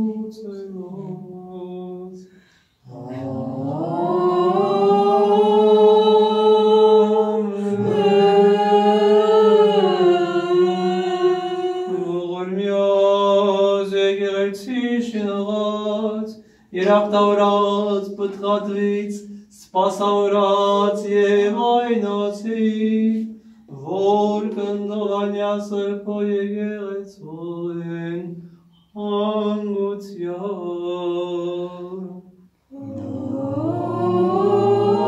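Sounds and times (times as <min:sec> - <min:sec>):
voice singing slow melody: 0:00.0 - 0:12.4, 0:32.7 - 0:35.0
voice holding low drone: 0:02.8 - 0:08.6, 0:32.7 - 0:35.0.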